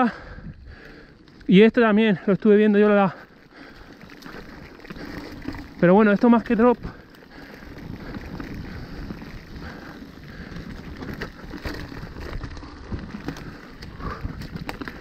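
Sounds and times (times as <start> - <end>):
bike clicks and knocks: 3.6 - 15.0.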